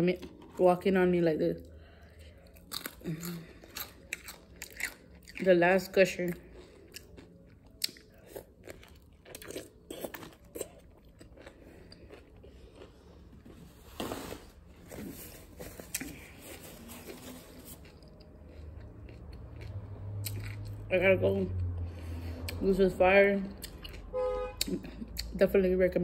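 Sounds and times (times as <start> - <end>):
wet chewing: 2.3 - 5.5, 6.3 - 14.2, 14.9 - 20.8, 23.5 - 25.4.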